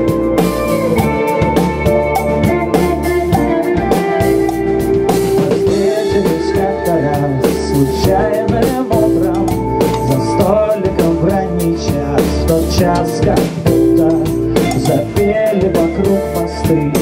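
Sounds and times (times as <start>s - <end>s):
drum kit beat: 0.0s - 17.0s
electric guitar: 0.0s - 17.0s.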